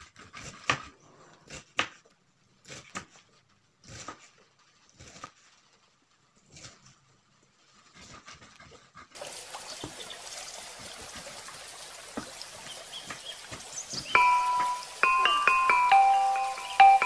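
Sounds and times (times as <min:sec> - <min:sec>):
knife slicing cabbage: 0:00.0 - 0:09.0
background music with chimes: 0:14.2 - 0:17.0.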